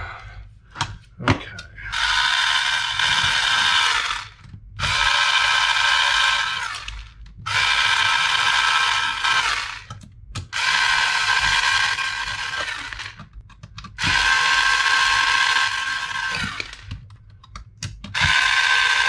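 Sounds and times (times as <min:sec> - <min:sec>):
cordless screwdriver whirring: 0:01.9 - 0:13.2, 0:14.0 - 0:16.9, 0:18.1 - 0:19.0.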